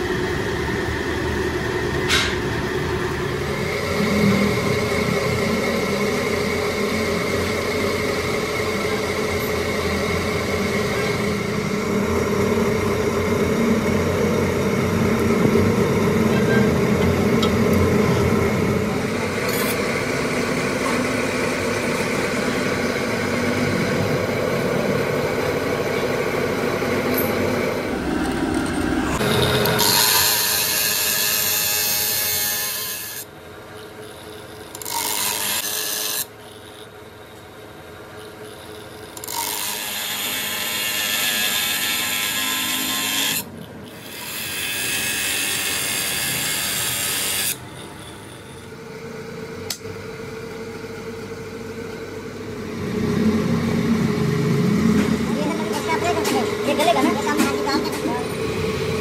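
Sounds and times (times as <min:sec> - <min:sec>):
power tool grinding metal: 0:26.8 - 0:37.0, 0:38.2 - 0:48.8.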